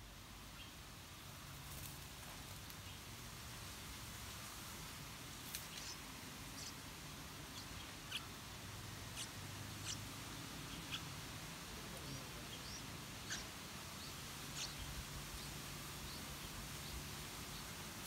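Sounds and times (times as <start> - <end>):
nestlings begging squeaks: 5.7 - 6.0, 6.6 - 6.8, 9.1 - 10.0, 12.1 - 14.9.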